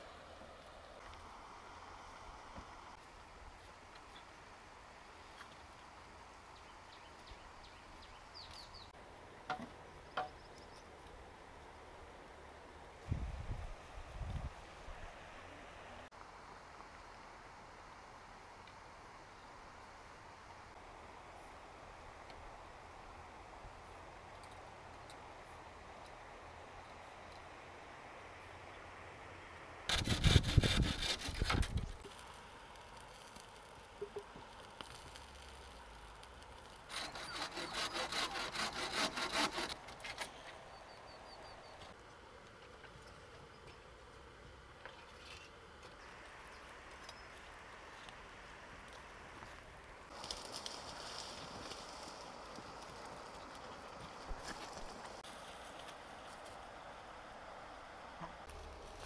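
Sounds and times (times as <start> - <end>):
bamboo poles knocking: 9.5 - 10.4.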